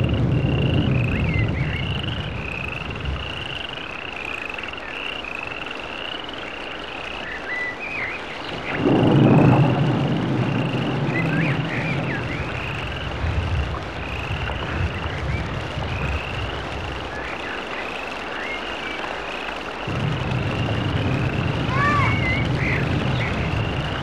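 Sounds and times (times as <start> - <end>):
frogs calling: 0.0 - 24.0
low rumble: 8.5 - 17.4, 19.9 - 24.0.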